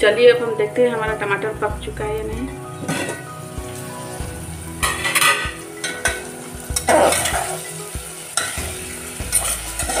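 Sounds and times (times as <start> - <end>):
food frying in a pot: 1.6 - 10.0
metal spatula scraping a pot: 6.8 - 7.7, 8.4 - 10.0.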